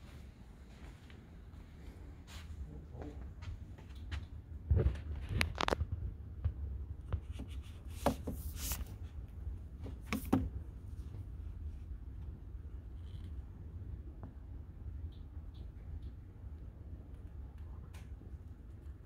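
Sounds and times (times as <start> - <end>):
books scraping and rustling: 7.6 - 9.0
books knocking on metal shelf: 8.0 - 8.5.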